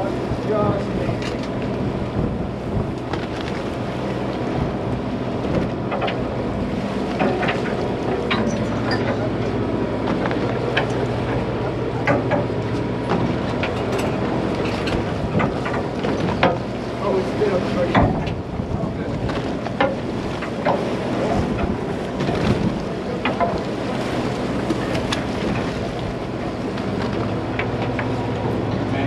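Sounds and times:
boat motor humming: 0.0s - 29.0s
wind buffeting microphone: 0.0s - 29.0s.

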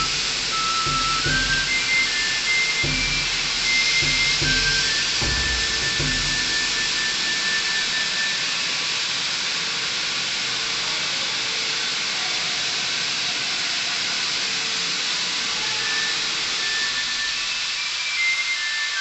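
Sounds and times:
sprinklers spraying water: 0.0s - 8.3s.

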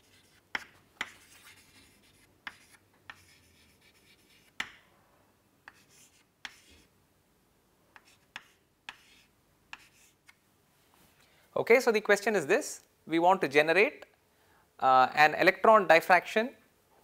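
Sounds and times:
chalk scratching on chalkboard: 0.0s - 4.7s, 5.7s - 6.9s, 8.0s - 10.4s
chalk tapping on board: 0.0s - 4.8s, 5.7s - 6.9s, 8.0s - 10.2s.

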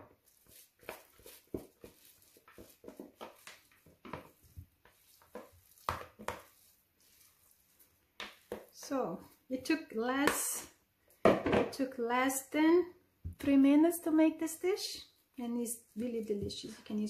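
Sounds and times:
plastic spatula scraping bowls: 0.0s - 9.8s.

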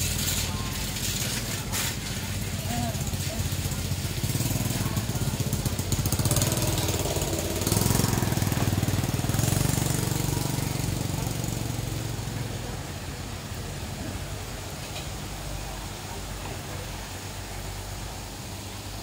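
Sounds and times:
small motorbike engine running: 0.0s - 16.0s.

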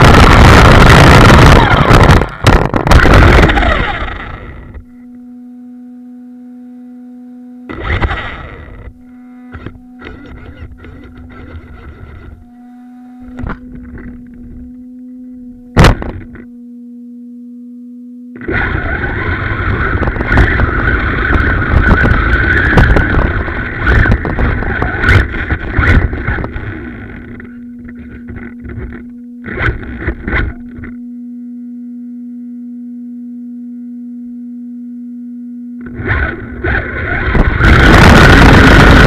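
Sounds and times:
rc car motor whine: 0.0s - 5.9s, 7.6s - 16.5s, 18.4s - 31.0s, 35.8s - 39.0s
low electric hum: 0.0s - 39.0s
loud knock: 15.8s - 16.3s.

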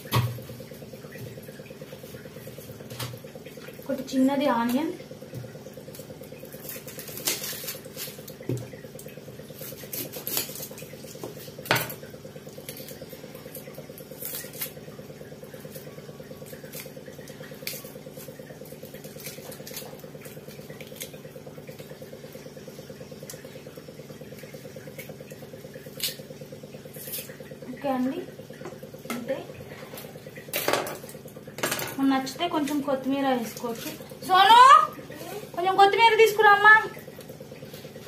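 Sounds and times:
steady low hum: 0.0s - 38.0s
knife scraping onion: 9.6s - 10.8s.

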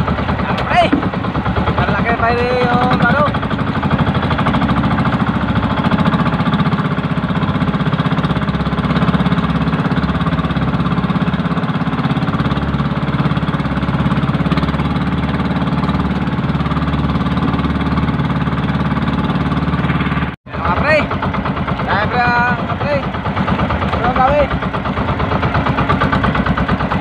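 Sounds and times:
boat engine running: 0.0s - 27.0s.

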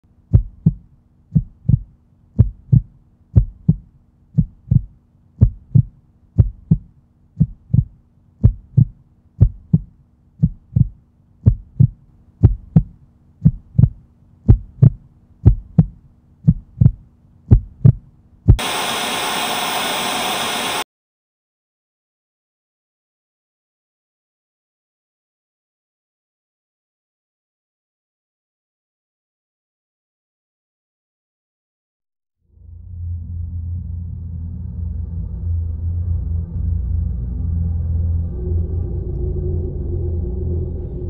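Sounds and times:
heartbeat thumps: 0.2s - 18.6s
loud static hiss: 18.6s - 20.8s.

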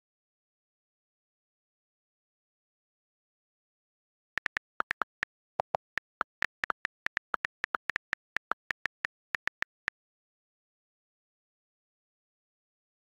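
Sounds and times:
on-screen keyboard clicks: 4.4s - 9.9s.

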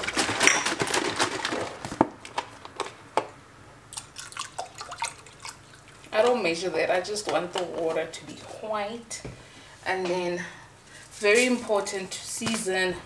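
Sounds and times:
liquid dripping and splashing: 3.9s - 6.2s.

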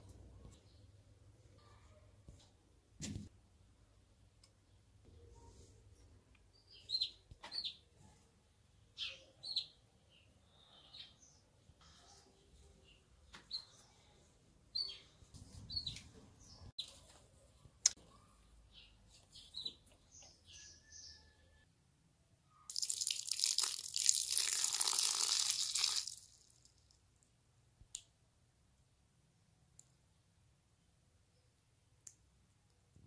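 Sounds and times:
small birds chirping: 4.2s - 21.6s.

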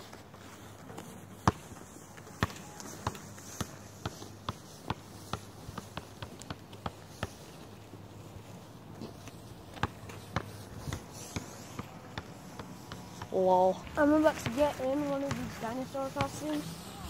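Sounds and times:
basketball bouncing on asphalt: 0.9s - 17.0s.

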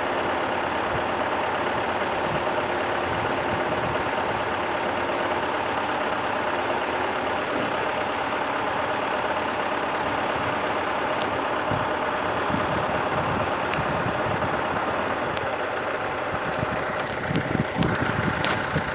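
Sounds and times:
truck engine idling: 0.0s - 18.9s.

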